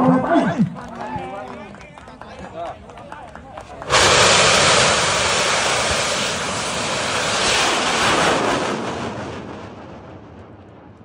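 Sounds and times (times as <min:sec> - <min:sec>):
rocket motor rushing: 0:03.8 - 0:09.1.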